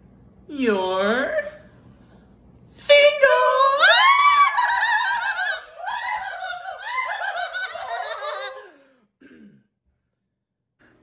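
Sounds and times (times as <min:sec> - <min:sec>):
young men laughing and shrieking: 0:05.2 - 0:08.8.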